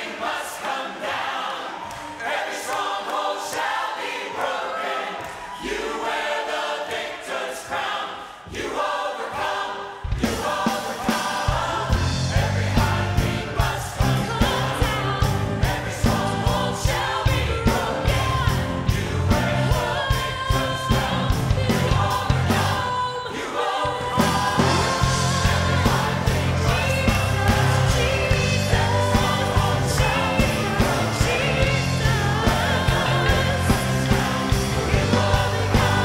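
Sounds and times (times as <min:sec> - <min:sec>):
choir singing: 0:00.0 - 0:36.0
band with bass and drums: 0:10.1 - 0:22.8, 0:24.1 - 0:36.0.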